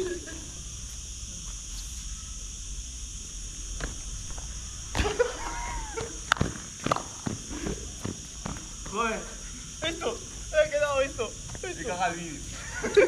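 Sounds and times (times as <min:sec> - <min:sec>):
steady high hiss: 0:00.0 - 0:13.0
sneakers striking hard court: 0:06.0 - 0:09.0.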